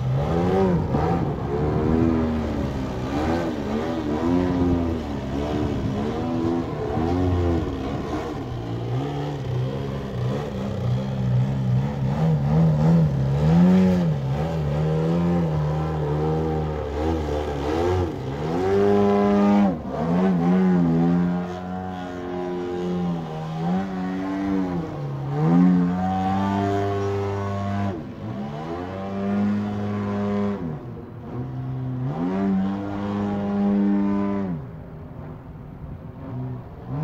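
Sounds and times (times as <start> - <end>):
model plane engine revving: 0.0 - 27.9.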